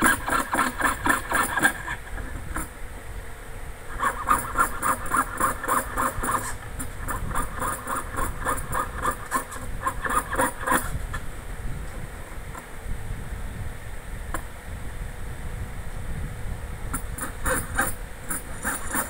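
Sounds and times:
saw blade cutting sheet metal: 0:00.0 - 0:02.7, 0:03.9 - 0:11.0, 0:16.9 - 0:19.0.

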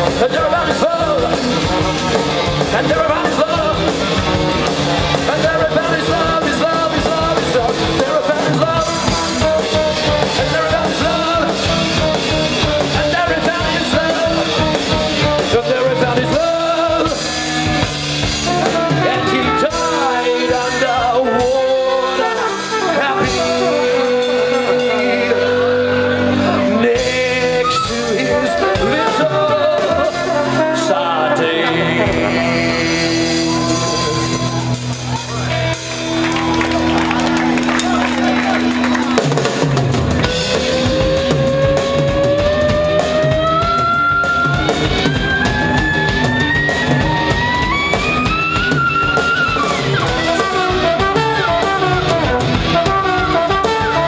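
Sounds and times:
live band playing: 0:00.0 - 0:54.0.

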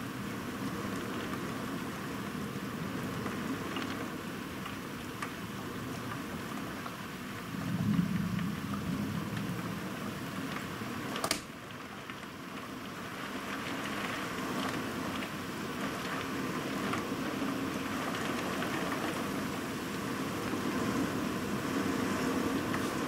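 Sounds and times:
heavy rain falling: 0:00.0 - 0:23.0
sharp click: 0:11.2 - 0:11.5.

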